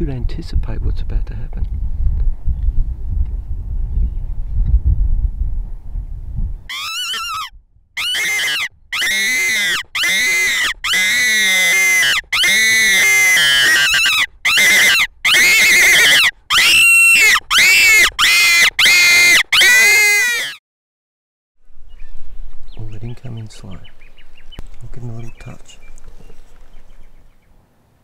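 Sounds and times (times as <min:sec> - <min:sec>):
fox call wailing squeals: 0:06.7 - 0:20.6.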